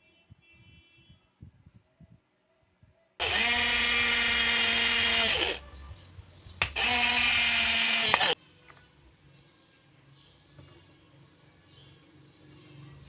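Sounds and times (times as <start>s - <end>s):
cordless drill drilling plastic: 3.2s - 5.6s, 6.6s - 8.4s
sharp click: 6.6s - 6.8s.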